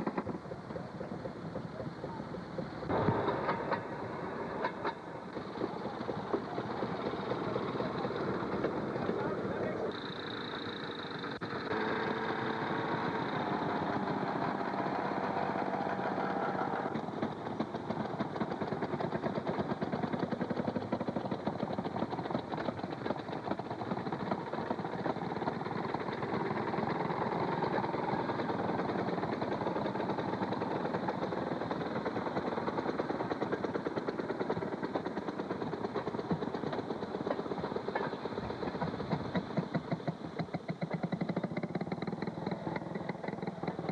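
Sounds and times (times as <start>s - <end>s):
two-stroke engines popping exhaust: 0.0s - 43.9s.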